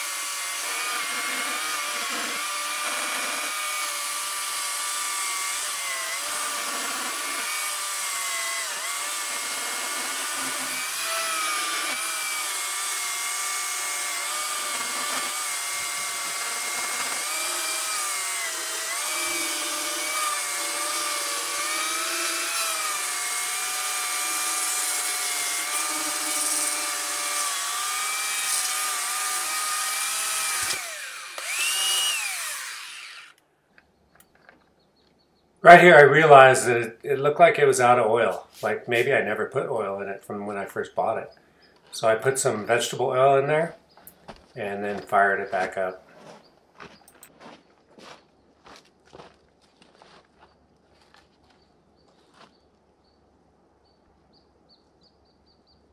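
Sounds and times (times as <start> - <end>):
electric chainsaw cutting log: 0.0 - 33.4.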